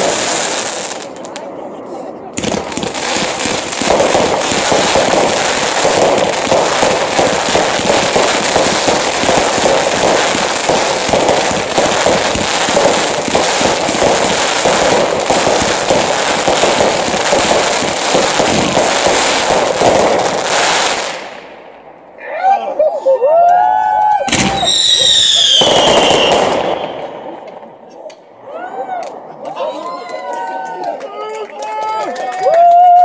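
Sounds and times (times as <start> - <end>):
fireworks bangs and crackling: 0.0 - 21.8, 24.3 - 27.9.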